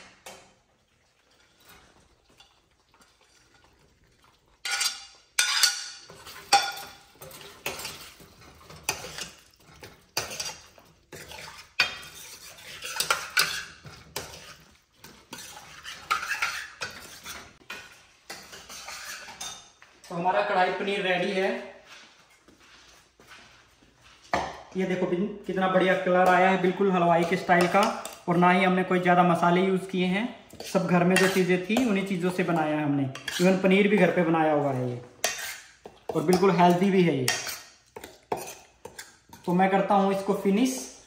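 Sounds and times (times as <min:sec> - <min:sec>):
metal spoon scraping and clinking pan: 0:04.6 - 0:20.2, 0:25.9 - 0:28.4, 0:30.5 - 0:40.9.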